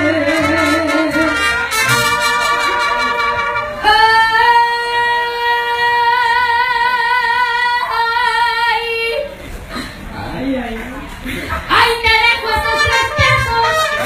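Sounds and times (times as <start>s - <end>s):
woman singing into microphone: 0.0s - 1.4s, 3.8s - 9.3s, 11.6s - 14.0s.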